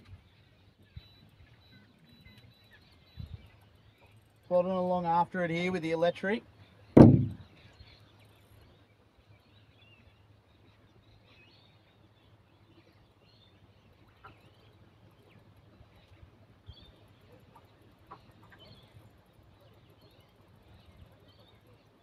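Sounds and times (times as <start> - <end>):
low steady hum: 0.0 - 22.0
faint bird chirps: 0.1 - 5.7.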